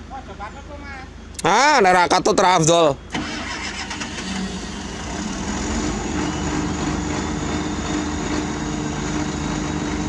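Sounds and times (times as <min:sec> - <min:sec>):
excavator diesel engine running: 0:03.0 - 0:10.0.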